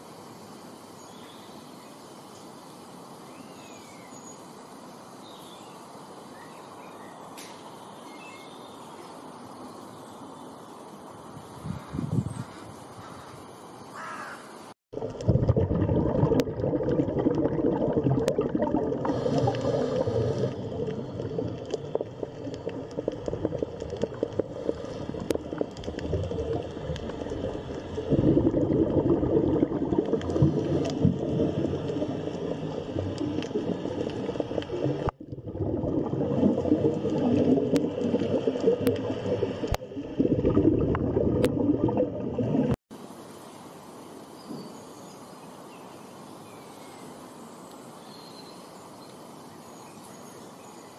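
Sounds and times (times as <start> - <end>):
water bubbling in an aquarium: 15.0 - 42.8.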